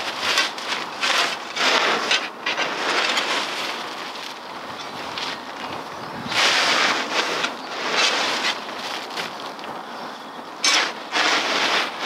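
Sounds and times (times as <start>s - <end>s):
shovel scraping through soil: 0.0s - 4.4s, 6.2s - 9.4s, 10.6s - 12.0s.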